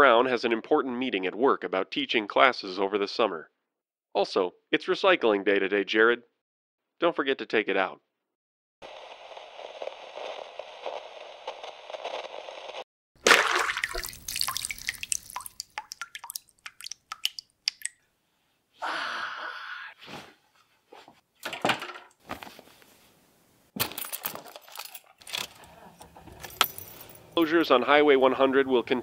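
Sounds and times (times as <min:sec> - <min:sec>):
liquid splashing and dripping: 0:13.2 - 0:18.0.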